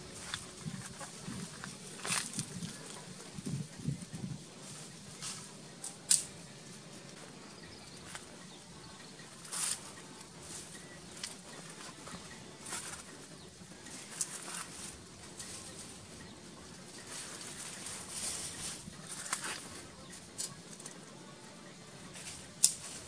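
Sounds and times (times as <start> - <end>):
footsteps on dry leaves: 0.0 - 3.7.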